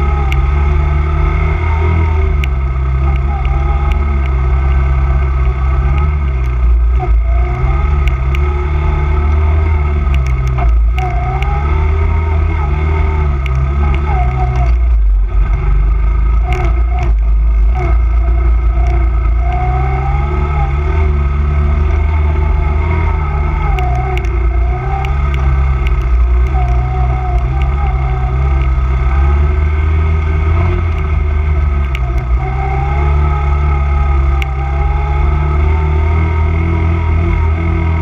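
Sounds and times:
quad engine revving: 0.0s - 38.0s
clicks and clatter from bumps: 2.3s - 19.9s, 21.8s - 29.5s, 30.5s - 34.9s.

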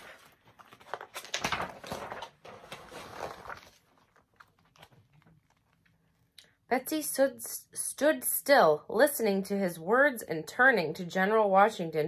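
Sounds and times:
paper rustling and scraping: 0.0s - 5.7s
page turning: 0.0s - 6.0s.

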